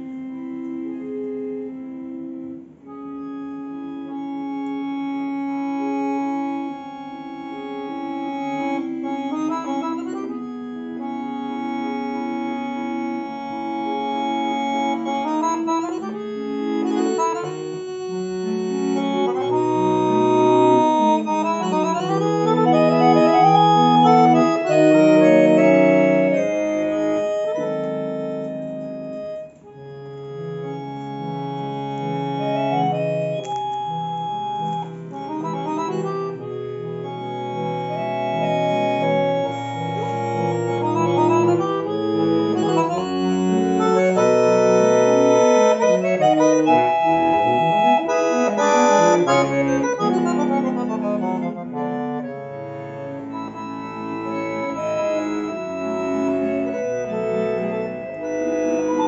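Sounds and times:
piano accordion playing: 0.0s - 59.0s.

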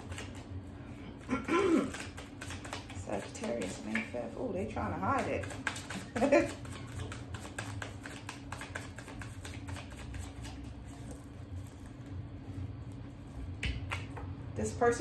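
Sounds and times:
cards being shuffled: 0.0s - 0.5s, 1.7s - 4.4s, 5.0s - 11.8s
low steady hum: 0.0s - 15.0s.

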